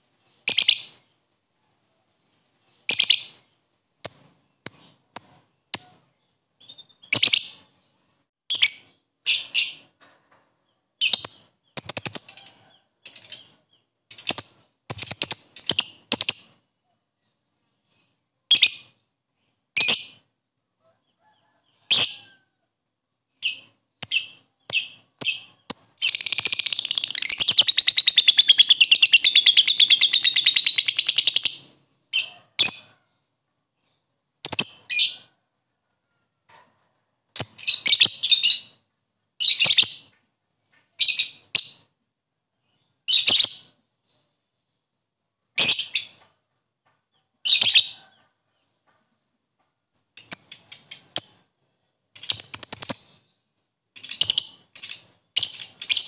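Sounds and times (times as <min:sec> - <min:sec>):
bird chirping shrilly: 0:23.5 - 0:31.7
bird chattering trill: 0:24.1 - 0:31.7.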